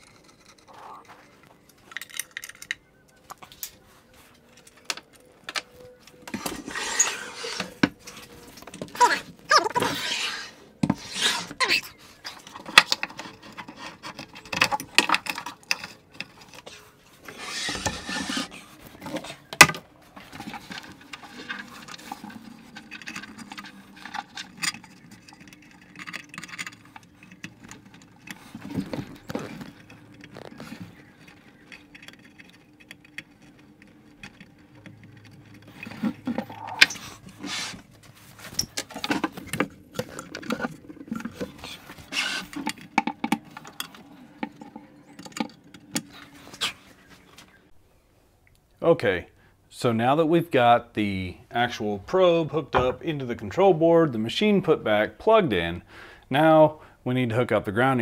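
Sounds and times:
handling clicks and knocks: 0:10.8 - 0:47.6
brief scrape: 0:36.5 - 0:37.8.

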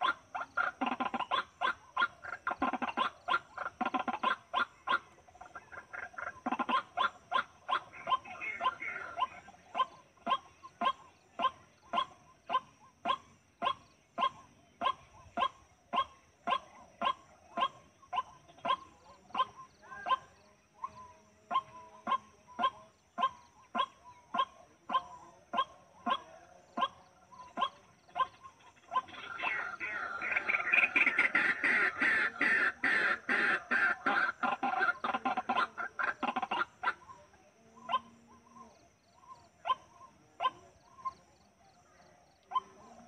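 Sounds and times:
waterhen harsh calls: 0:00.0 - 0:12.1, 0:27.6 - 0:37.2.

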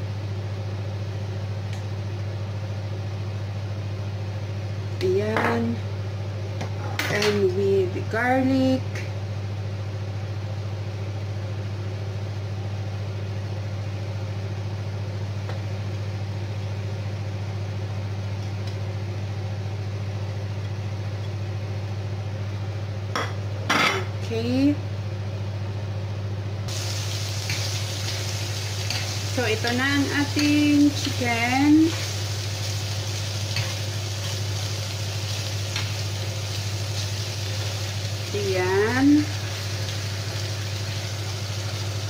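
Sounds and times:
low steady hum: 0:00.0 - 0:42.0
chicken sizzling in grill pan: 0:26.7 - 0:42.0
spatula turning food over: 0:27.4 - 0:36.2.

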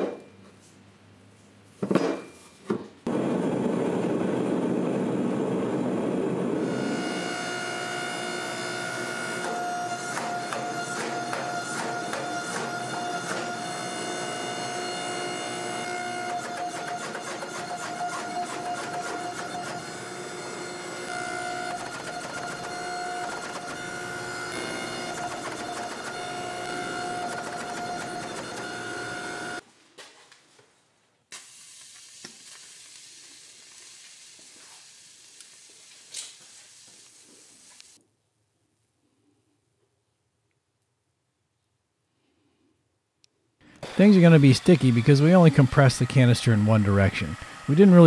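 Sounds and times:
hydraulic press pump whine: 0:03.1 - 0:29.6, 0:43.7 - 0:48.0
hiss and crackle: 0:31.3 - 0:38.0.

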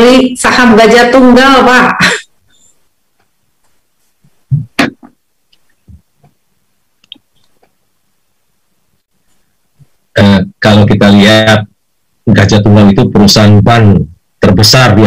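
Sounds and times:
soft thumps: 0:03.2 - 0:05.2.

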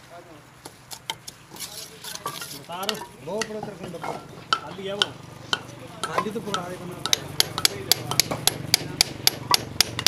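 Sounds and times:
trowel scraping mortar: 0:00.9 - 0:03.6
hammer tapping on bricks: 0:02.2 - 0:10.0.

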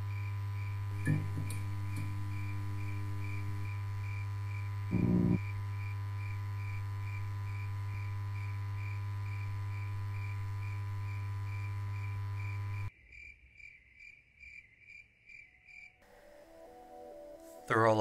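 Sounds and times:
low electronic drone: 0:04.9 - 0:05.4
pulsing high tone: 0:04.9 - 0:05.4.

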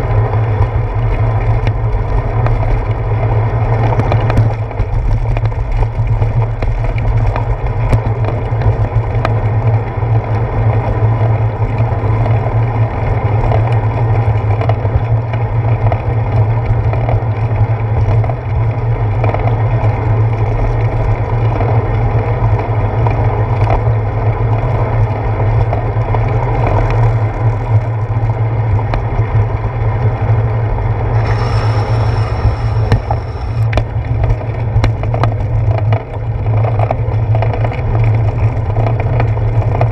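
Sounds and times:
tyres rumbling on wet pavement: 0:00.0 - 0:39.9
bright hiss: 0:31.2 - 0:33.7.

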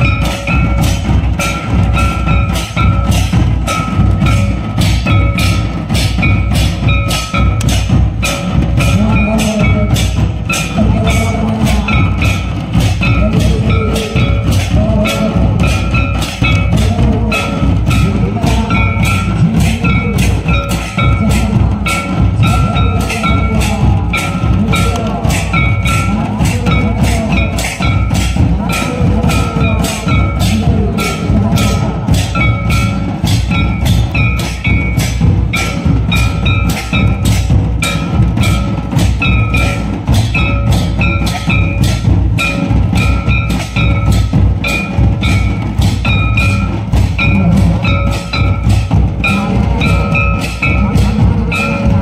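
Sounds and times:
bell-like ringing tone: 0:00.0 - 0:52.0
drums beating steady rhythm: 0:00.0 - 0:52.0.

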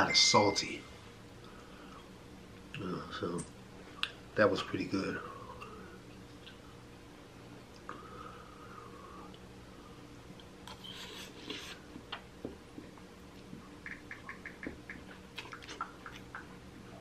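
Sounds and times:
man chewing noodles: 0:10.3 - 0:17.0
wet mouth clicks and smacks: 0:13.8 - 0:16.5.

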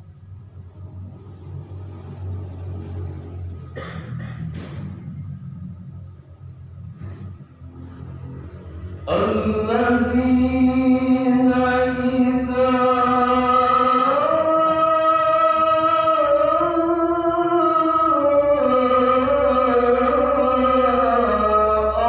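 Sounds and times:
man reciting melodically: 0:09.1 - 0:22.0.

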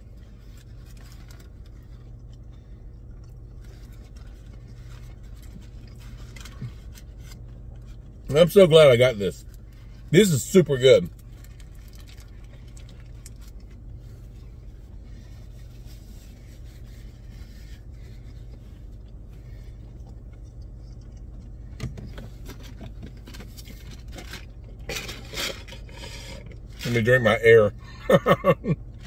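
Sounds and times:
car idling heard from cabin: 0:00.0 - 0:29.0
person chewing: 0:00.5 - 0:08.2, 0:16.4 - 0:21.8.

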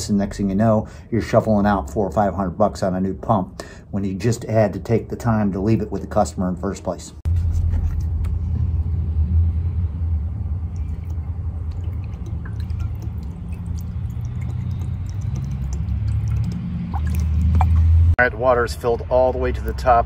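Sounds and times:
steady low rumble: 0:07.3 - 0:14.3
water pouring from plastic jug: 0:10.6 - 0:18.0.

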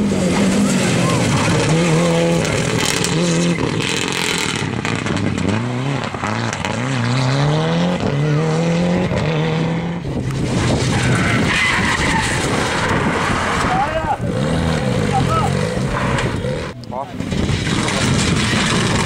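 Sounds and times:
car sliding on gravel: 0:00.0 - 0:07.5, 0:10.3 - 0:19.0
rally car engine revving: 0:00.0 - 0:19.0
tyres skidding and spinning: 0:00.0 - 0:19.0.

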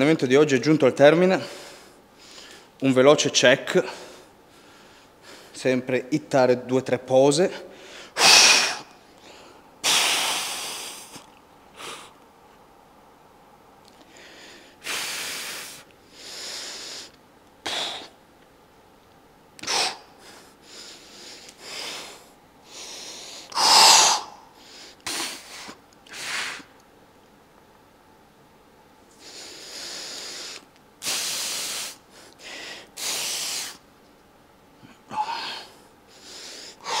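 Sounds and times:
man breathing forcefully: 0:07.7 - 0:12.2, 0:14.1 - 0:18.2, 0:19.6 - 0:26.7, 0:29.2 - 0:33.8, 0:34.9 - 0:37.0.

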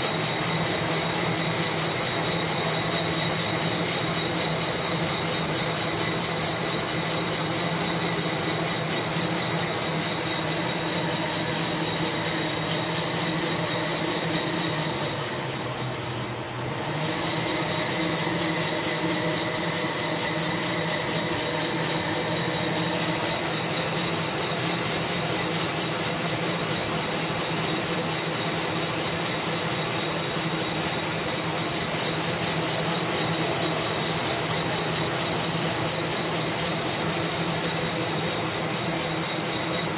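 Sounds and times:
roaster blower rushing: 0:00.0 - 0:39.9.

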